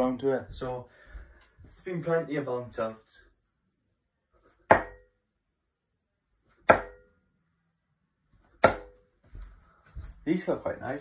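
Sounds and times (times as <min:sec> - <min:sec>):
darts striking dartboard: 0:04.7 - 0:05.1, 0:06.7 - 0:07.1, 0:08.6 - 0:09.0.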